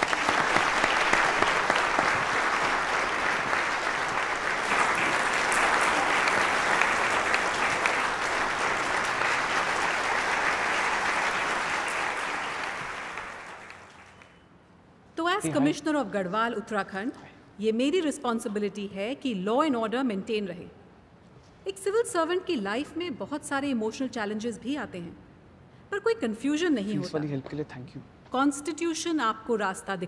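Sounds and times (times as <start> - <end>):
audience applauding: 0.0 - 14.4.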